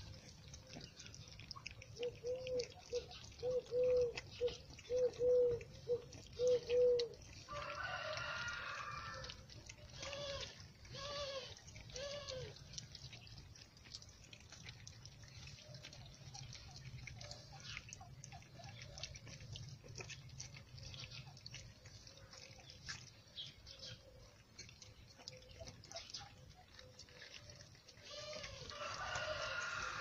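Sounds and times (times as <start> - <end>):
puppies lapping and chewing: 0.0 - 30.0
animal cry: 10.0 - 12.6, 28.0 - 30.0.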